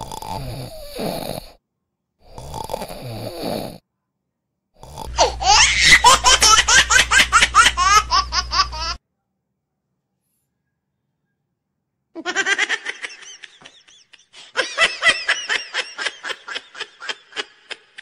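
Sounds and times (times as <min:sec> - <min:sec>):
person snoring: 0:00.0 - 0:01.6, 0:02.2 - 0:03.8, 0:04.8 - 0:09.0
laughter sound effect: 0:05.2 - 0:09.0, 0:12.2 - 0:18.0.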